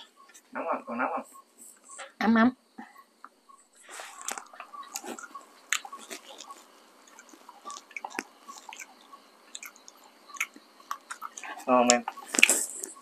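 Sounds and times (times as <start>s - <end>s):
person chewing dried meat: 3.8s - 13.0s.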